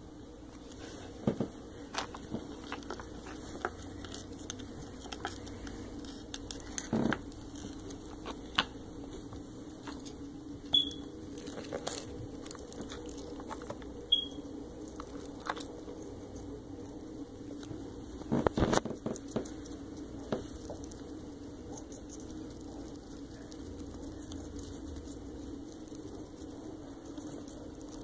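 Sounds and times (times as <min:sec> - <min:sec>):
hamster chirps: 0:10.7 - 0:11.1, 0:14.0 - 0:14.5, 0:19.2 - 0:28.0.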